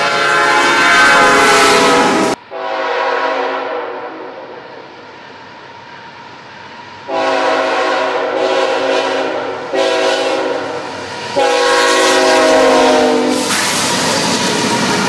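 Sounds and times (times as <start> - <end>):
locomotive air horn chord: 0.0 - 4.6, 7.1 - 13.6
rush of passing locomotives: 0.0 - 15.0.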